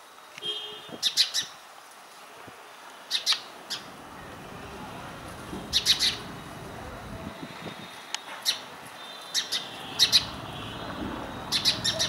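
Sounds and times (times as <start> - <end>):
sparrow chirping: 1.0 - 1.6, 3.1 - 3.9, 5.7 - 6.4, 8.4 - 12.0.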